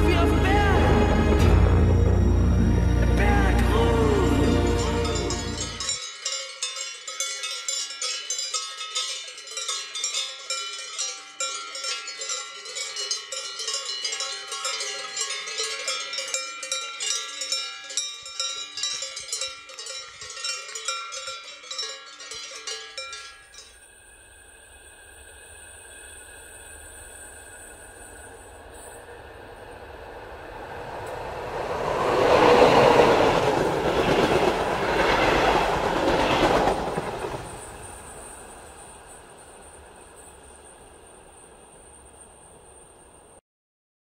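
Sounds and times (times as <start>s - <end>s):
cowbells clanking: 4.4s - 23.8s.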